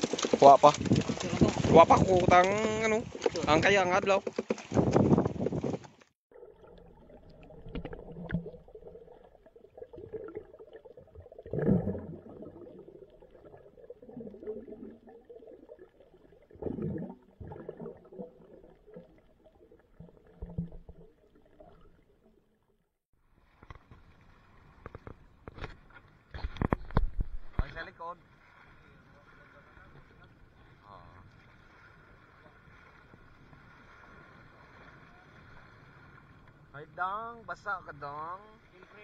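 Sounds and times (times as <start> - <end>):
underwater gurgling and bubbling: 6.3 - 22.6.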